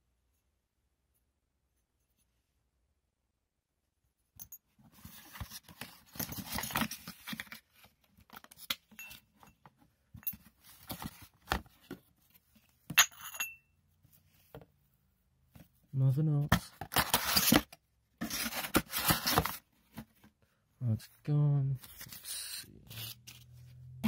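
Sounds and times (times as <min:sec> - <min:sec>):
cardboard and packaging rustling: 0:04.7 - 0:12.9, 0:15.5 - 0:20.5, 0:21.8 - 0:24.0.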